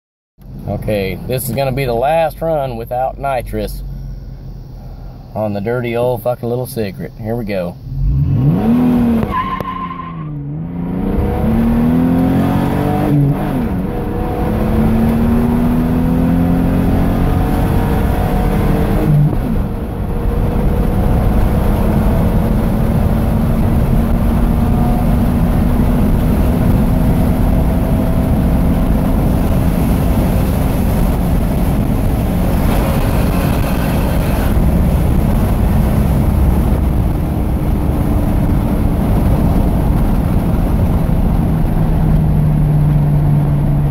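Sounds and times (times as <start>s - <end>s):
truck engine accelerating: 7.8s - 43.9s.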